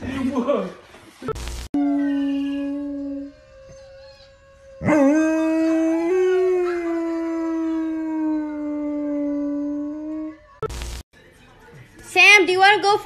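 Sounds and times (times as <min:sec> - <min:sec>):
dog howling: 0:01.8 - 0:10.6.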